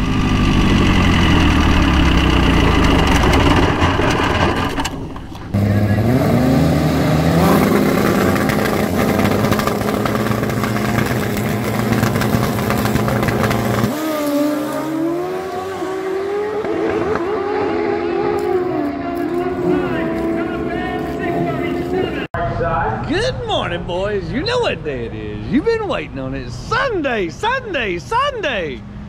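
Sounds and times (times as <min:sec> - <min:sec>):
motorcycle engine revving: 0:00.0 - 0:22.4.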